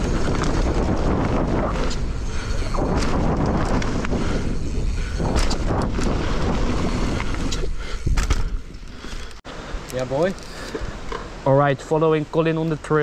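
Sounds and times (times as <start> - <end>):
wind on microphone: 0.0 - 9.2
bike knocking and rattling: 0.0 - 9.4
bike tyres on dirt: 0.0 - 13.0.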